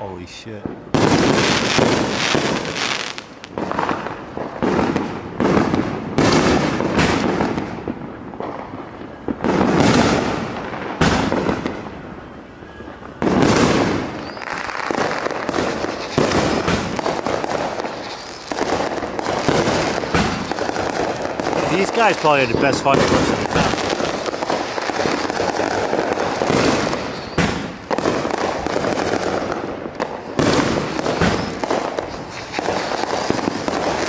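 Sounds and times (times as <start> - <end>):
fireworks bursting with echo: 0.0 - 34.0.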